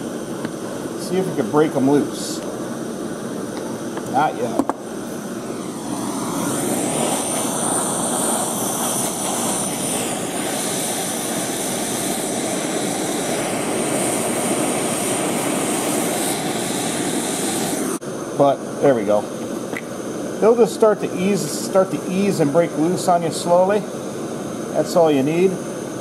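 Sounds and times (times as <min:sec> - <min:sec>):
gas torch hissing: 0:00.0 - 0:26.0.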